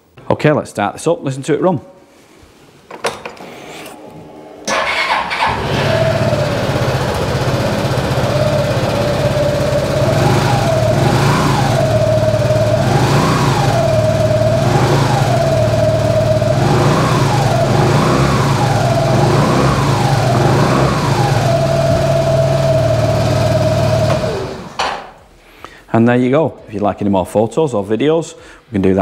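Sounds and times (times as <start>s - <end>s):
scooter engine idling and revving: 4.7s - 24.8s.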